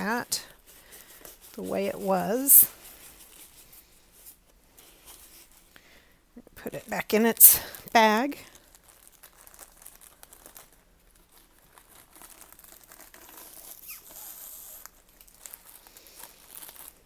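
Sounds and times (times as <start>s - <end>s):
plastic bag crinkling: 6.6s - 17.0s.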